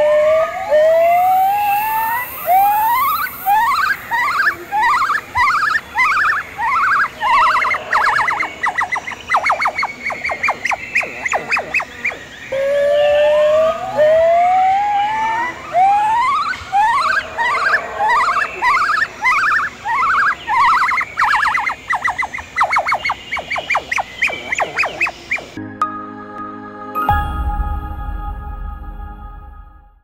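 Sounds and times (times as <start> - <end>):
gibbon whooping song: 0.0 - 25.6.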